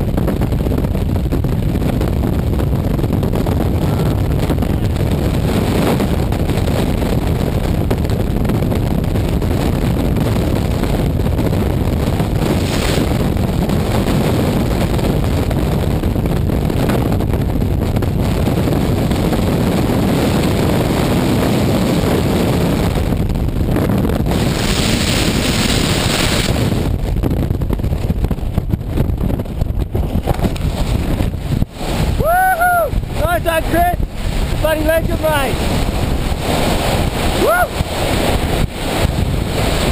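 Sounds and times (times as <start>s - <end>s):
freefall wind roar: 0.0s - 39.9s.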